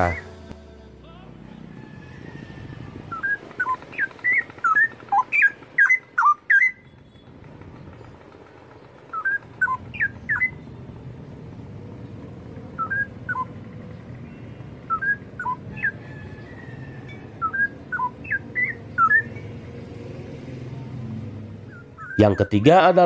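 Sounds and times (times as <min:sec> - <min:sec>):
low background hum: 0:00.0 - 0:23.0
bird singing sliding whistles: 0:03.1 - 0:07.3, 0:09.1 - 0:10.7, 0:12.8 - 0:13.6, 0:14.8 - 0:16.6, 0:17.4 - 0:19.6, 0:21.6 - 0:22.6.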